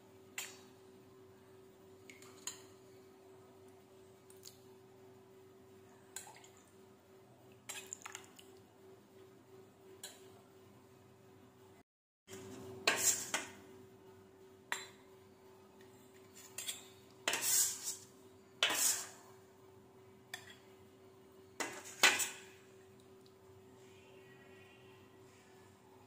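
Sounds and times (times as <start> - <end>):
faint steady hum: 22.4 - 26.0.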